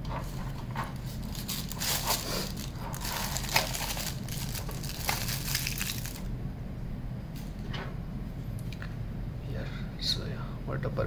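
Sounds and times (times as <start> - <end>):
plastic wrapping crinkling: 0.8 - 6.3.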